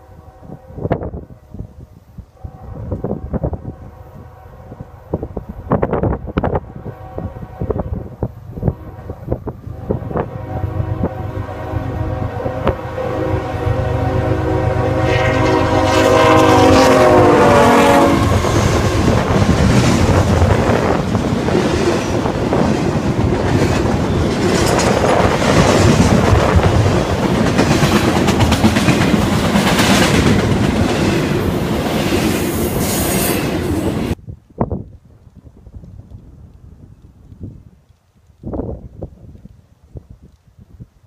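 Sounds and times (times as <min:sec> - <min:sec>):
locomotive air horn: 0:00.0 - 0:01.1, 0:02.3 - 0:05.1, 0:06.6 - 0:19.4
train rumbling past: 0:02.4 - 0:34.2
wheels clacking over rail joints: 0:18.3 - 0:32.3.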